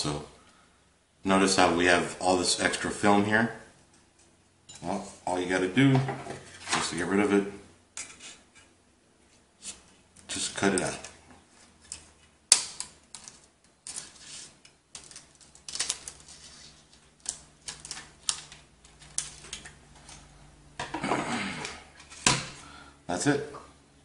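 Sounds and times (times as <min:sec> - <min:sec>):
plastic film rustling: 0:12.7 - 0:20.3.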